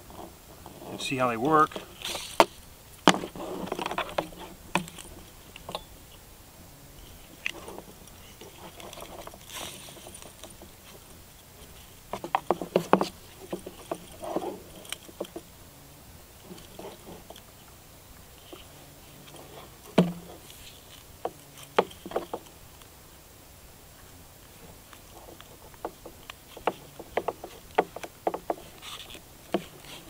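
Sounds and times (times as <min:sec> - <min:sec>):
leather rustling: 0:07.0 - 0:15.4.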